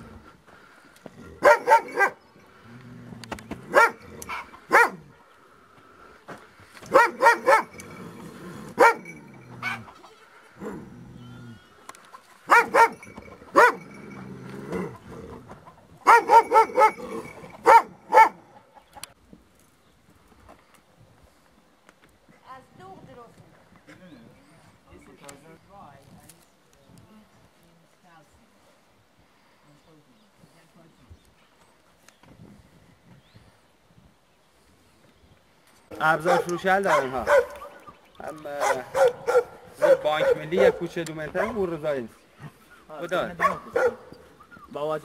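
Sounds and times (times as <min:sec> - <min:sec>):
dog barking: 0:01.4 - 0:02.2, 0:03.7 - 0:05.1, 0:06.9 - 0:07.8, 0:08.8 - 0:09.9, 0:12.5 - 0:13.9, 0:16.0 - 0:18.6, 0:36.2 - 0:37.8, 0:38.6 - 0:41.6, 0:43.4 - 0:44.2.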